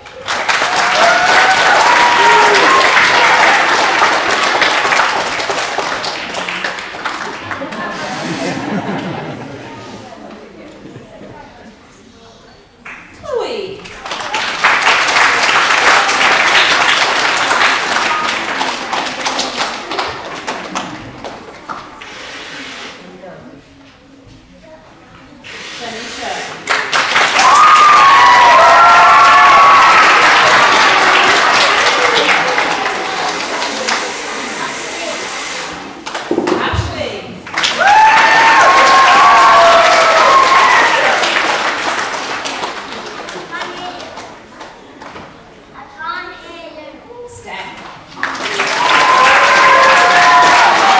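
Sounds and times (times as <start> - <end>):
children clapping: 0.0 - 8.2, 13.8 - 22.2, 26.6 - 34.8, 35.7 - 36.7, 37.4 - 45.2, 47.8 - 50.9.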